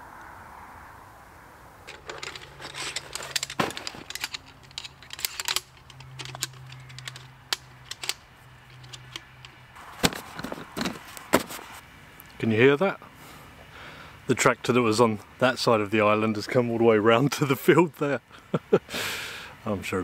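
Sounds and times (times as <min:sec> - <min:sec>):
tractor engine hum: 0:01.8 - 0:14.9
metal tripod rods clinking: 0:01.9 - 0:11.8.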